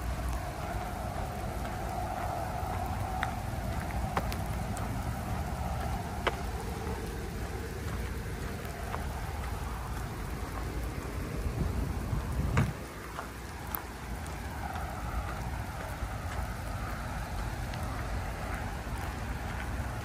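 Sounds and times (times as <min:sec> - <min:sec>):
sharp ticks: 0:00.0 - 0:20.0
tyres rolling over rough asphalt: 0:00.0 - 0:20.0
wind buffeting microphone: 0:00.0 - 0:20.0.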